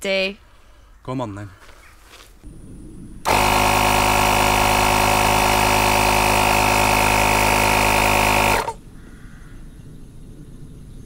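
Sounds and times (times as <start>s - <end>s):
air compressor motor buzzing: 3.3s - 8.8s.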